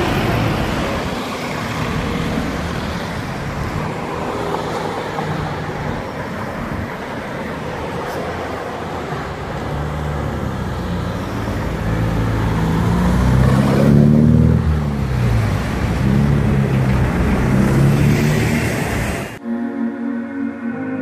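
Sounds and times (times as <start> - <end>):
car engines in traffic: 0.0 - 19.4
car accelerating away: 9.6 - 19.4.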